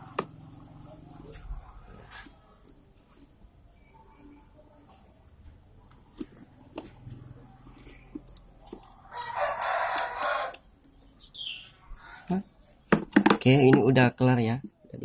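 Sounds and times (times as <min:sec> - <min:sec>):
rooster crowing: 0:09.0 - 0:10.7.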